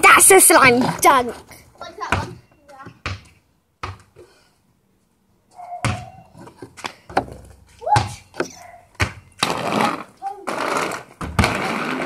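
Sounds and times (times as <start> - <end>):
basketball bouncing: 2.1 - 4.1, 5.8 - 6.2, 7.1 - 9.6.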